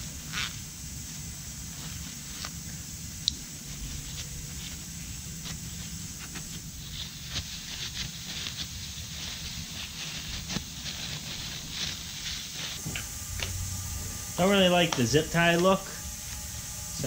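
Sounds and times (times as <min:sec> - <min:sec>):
steady low hum: 0:00.0 - 0:17.0
paper towel crinkling: 0:03.6 - 0:12.8.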